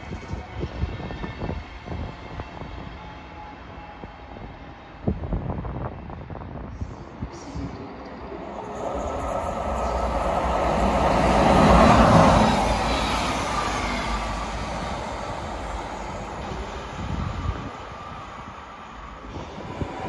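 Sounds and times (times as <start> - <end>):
train passing rumble: 0.7 - 20.0.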